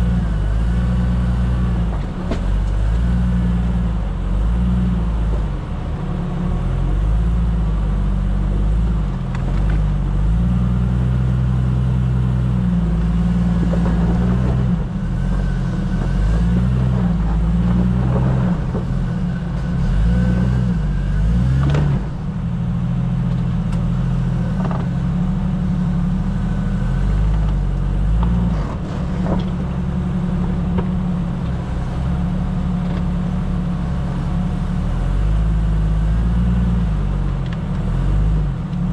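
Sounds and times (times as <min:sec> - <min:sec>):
engine running low: 0:00.0 - 0:38.9
knocks and clatter: 0:01.8 - 0:02.8, 0:13.0 - 0:19.9, 0:28.2 - 0:29.9.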